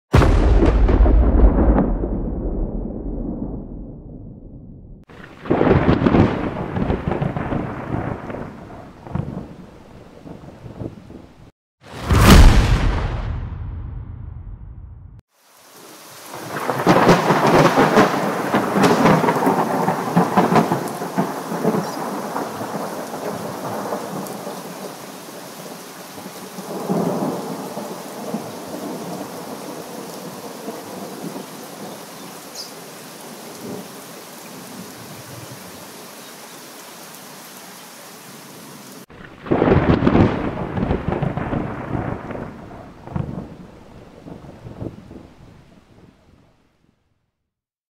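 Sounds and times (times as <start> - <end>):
thunder rolling: 0.1 - 15.2, 16.4 - 24.0, 39.1 - 46.3
steady rain: 5.0 - 12.5, 15.3 - 46.6.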